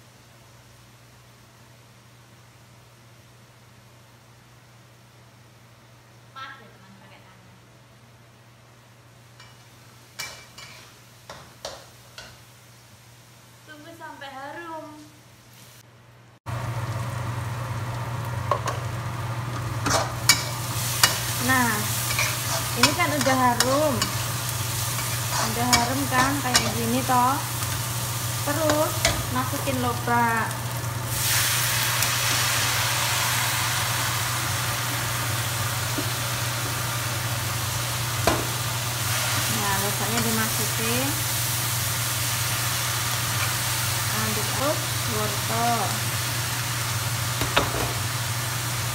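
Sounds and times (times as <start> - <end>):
aromatics sizzling in oil: 8.6 - 15.8, 16.4 - 48.9
metal spatula scraping wok: 19.8 - 27.0.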